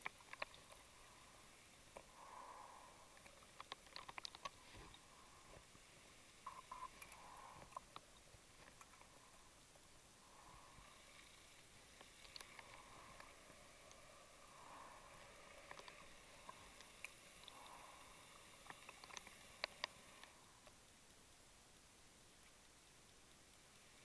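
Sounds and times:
sharp underwater clicks: 0:00.0 - 0:05.2, 0:06.4 - 0:09.5, 0:10.3 - 0:20.8
muffled underwater hiss: 0:00.0 - 0:24.0.

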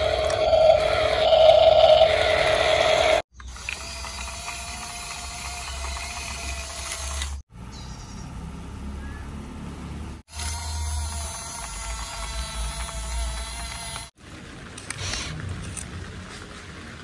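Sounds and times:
toy electric motor whining: 0:00.0 - 0:07.4, 0:10.3 - 0:14.1.

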